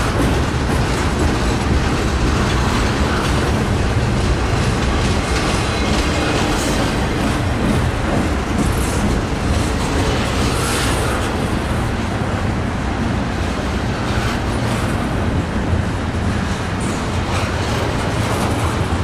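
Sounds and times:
train rumbling past: 0.0s - 19.0s.

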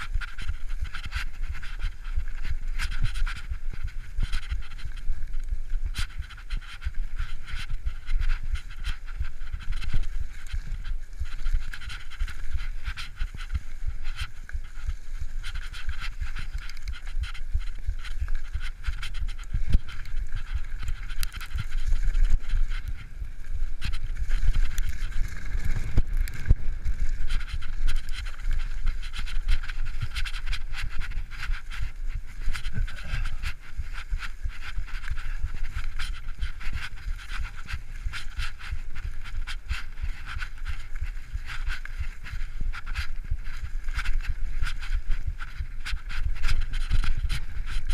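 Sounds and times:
bike clicks and rattles: 0.0s - 47.9s
rider panting hard: 0.0s - 47.9s
wind and tyre rumble: 0.0s - 47.9s.

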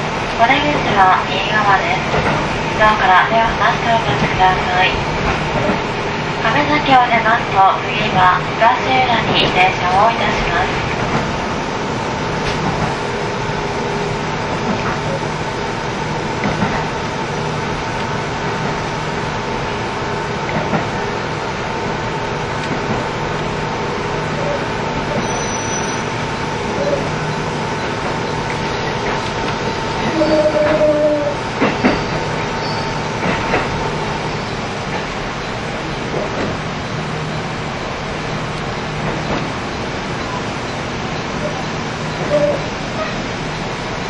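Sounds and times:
train engine and wheels rumbling: 0.0s - 44.0s.

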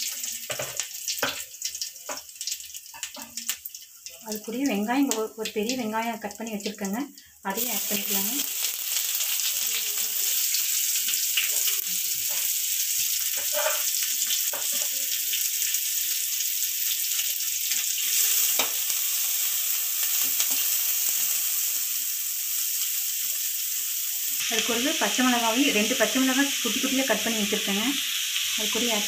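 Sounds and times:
onion sizzling in hot oil: 0.0s - 29.0s
ladle stirring in a pan: 8.6s - 15.1s.

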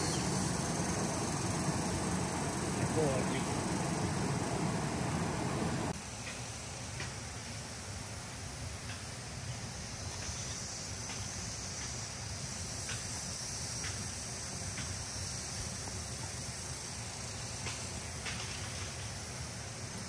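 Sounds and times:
low steady rush: 0.0s - 6.0s
insects trilling: 0.0s - 6.8s, 9.7s - 20.0s.

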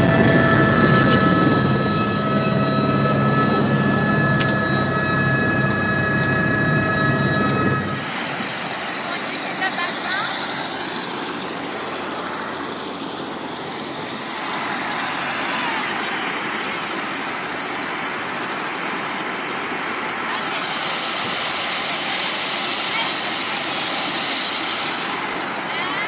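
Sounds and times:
helicopter turbine whine: 0.0s - 26.0s.

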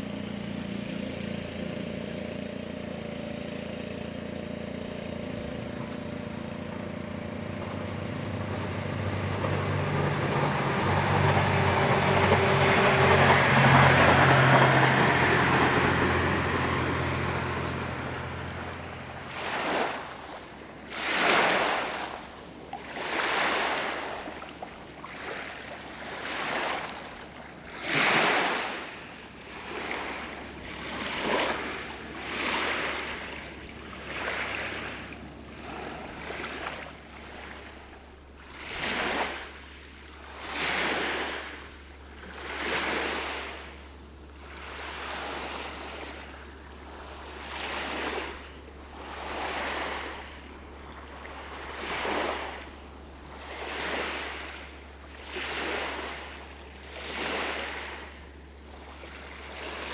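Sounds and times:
waves washing onto pebble shore: 14.3s - 37.8s, 38.4s - 43.8s, 47.0s - 50.4s, 51.1s - 59.9s.

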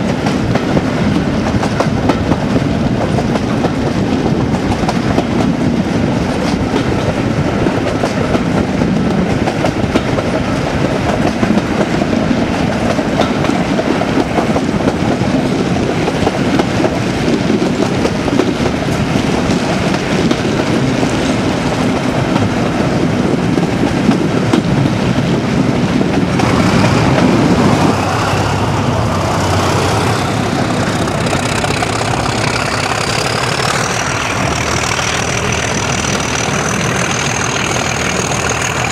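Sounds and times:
diesel locomotive engine working hard: 0.0s - 38.9s
train wheel noise: 0.0s - 38.9s
wind noise: 0.0s - 38.9s
turbocharger whistling: 30.8s - 38.9s.

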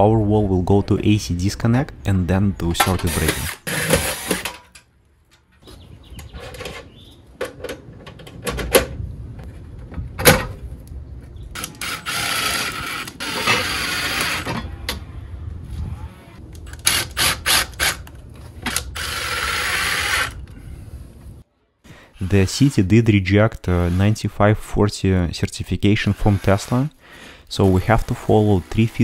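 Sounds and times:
cordless drill driving screws: 18.7s - 20.4s.

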